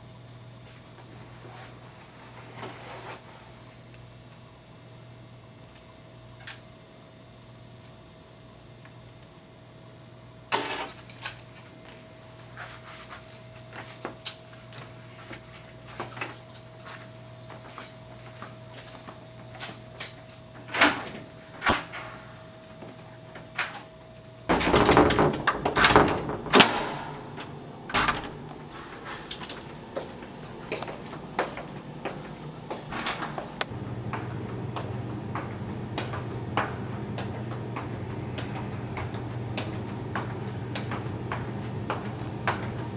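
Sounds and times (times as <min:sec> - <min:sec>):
steady hum: 0:00.0 - 0:42.9
door noise: 0:24.5 - 0:29.7, 0:32.7 - 0:33.7
footsteps: 0:28.4 - 0:42.9.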